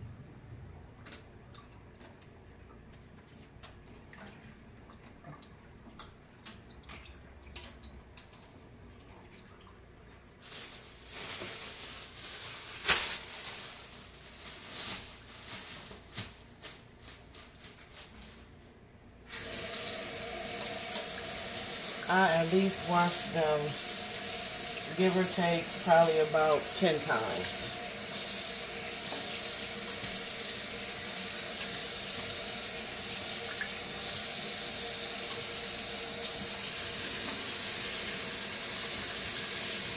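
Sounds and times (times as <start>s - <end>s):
water dripping in metal sink: 3.8s - 8.4s.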